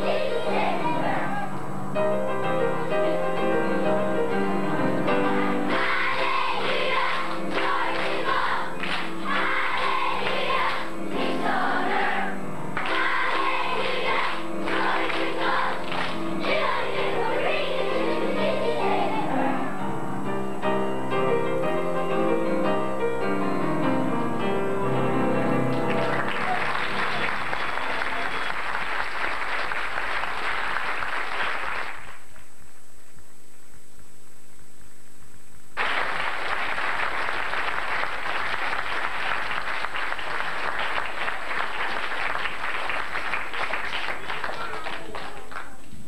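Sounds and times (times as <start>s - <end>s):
audience applause: 5.7s - 10.9s, 12.8s - 18.3s, 25.7s - 32.4s, 35.8s - 45.9s.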